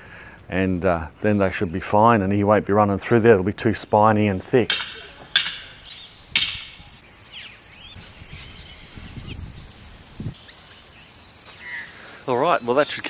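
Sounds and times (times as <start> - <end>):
sharp knocks: 4.7 - 6.8
high-pitched insect buzz: 5.0 - 12.1.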